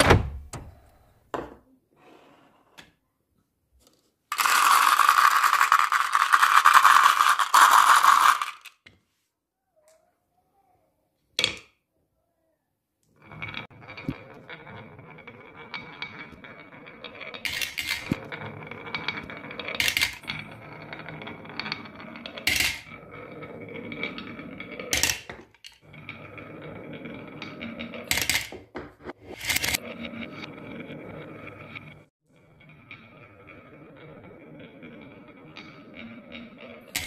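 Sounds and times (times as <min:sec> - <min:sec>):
marbles clacking: 0:04.3 - 0:08.8, 0:13.3 - 0:28.6
marbles rolling on wooden track: 0:04.3 - 0:09.0, 0:13.2 - 0:37.0.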